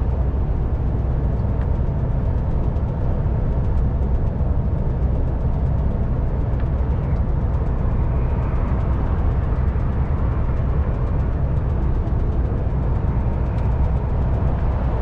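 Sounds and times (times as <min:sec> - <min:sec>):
truck engine drone: 0:00.0 - 0:15.0
tyre and road noise: 0:00.0 - 0:15.0.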